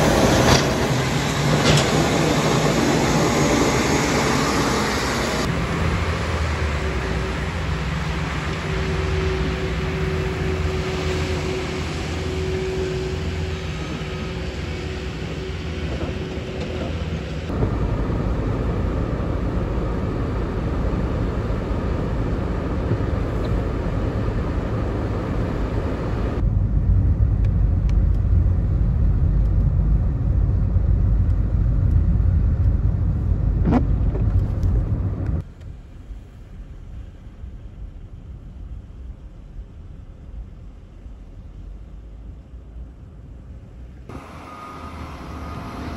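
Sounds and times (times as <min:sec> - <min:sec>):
diesel loader engine running: 0:00.0 - 0:36.0, 0:43.9 - 0:45.9
road and tyre rumble: 0:00.0 - 0:45.9
steady whine: 0:43.9 - 0:45.9.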